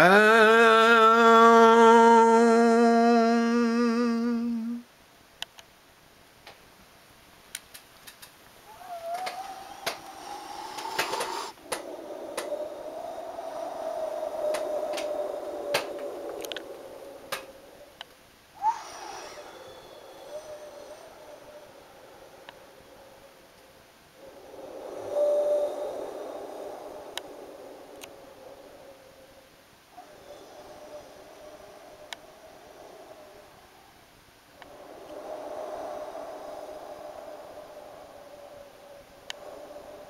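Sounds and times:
man humming: 0.0s - 4.9s
quiet wavering tone: 0.0s - 4.9s, 18.6s - 40.0s
faint scattered clicks: 5.4s - 5.7s, 7.5s - 10.2s, 10.8s - 12.6s, 14.4s - 18.2s, 27.9s - 28.2s, 39.2s - 39.5s.

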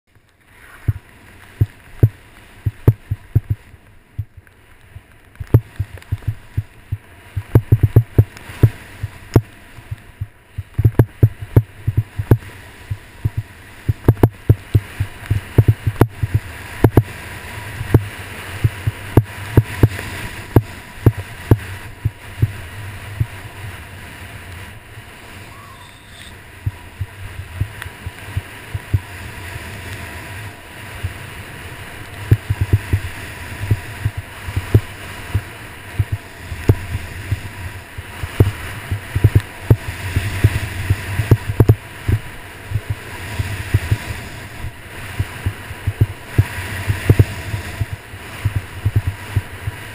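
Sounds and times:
skis hissing on snow: 0.5s - 1.6s, 12.0s - 14.0s, 14.7s - 39.2s, 39.8s - 49.9s
wind buffeting microphone: 0.8s - 49.9s
sharp thumps from bumps: 1.6s - 3.6s, 5.4s - 9.5s, 10.2s - 17.1s.

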